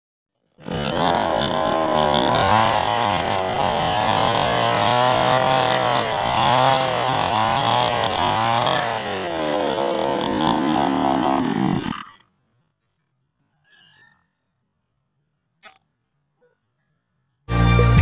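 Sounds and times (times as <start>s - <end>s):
chainsaw cutting log: 0.4s - 12.4s.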